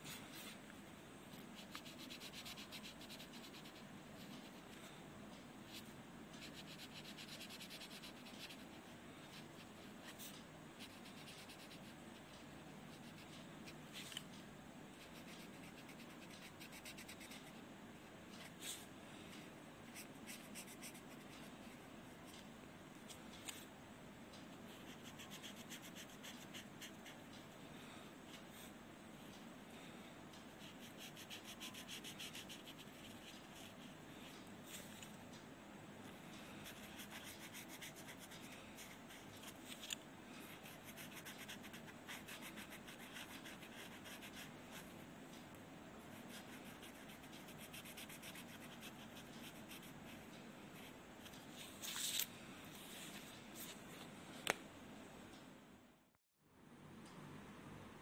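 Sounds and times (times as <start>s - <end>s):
marker scratching on paper: 1.6s - 4.6s, 30.6s - 33.9s.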